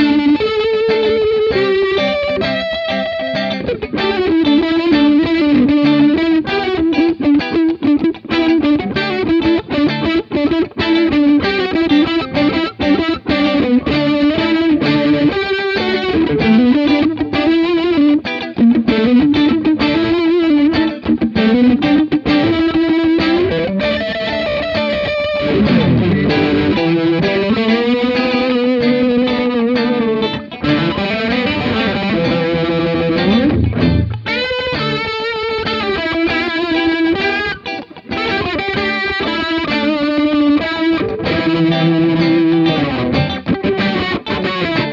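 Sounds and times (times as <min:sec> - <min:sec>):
electric guitars with rotating speaker: 0:00.0 - 0:44.9.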